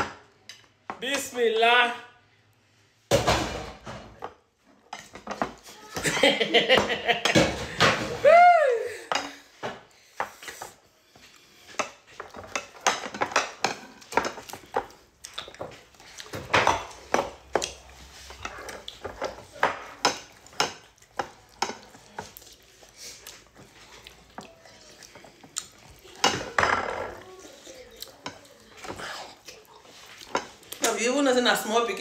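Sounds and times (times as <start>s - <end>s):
fingers and food tapping ceramic plates: 9.1s - 31.0s
chewing: 10.4s - 30.9s.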